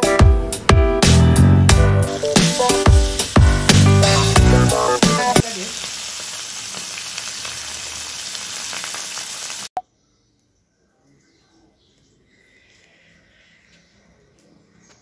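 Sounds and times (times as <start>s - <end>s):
background music: 0.0s - 5.4s
fish frying in hot oil: 5.0s - 9.7s.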